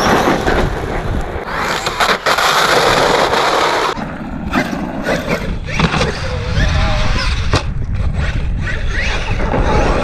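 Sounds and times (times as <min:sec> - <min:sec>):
tyres rushing on gritty asphalt: 0:00.0 - 0:04.0.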